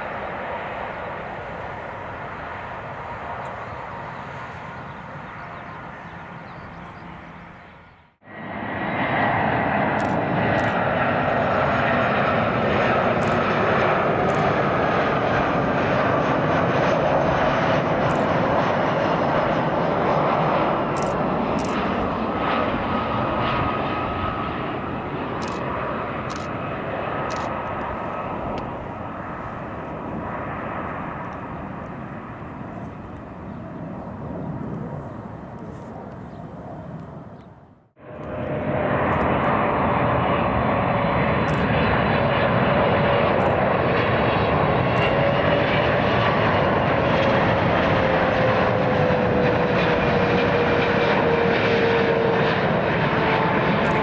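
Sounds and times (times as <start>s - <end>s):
jet engines with high whine: 0.0s - 54.0s
jet engines with lower whine: 0.0s - 54.0s.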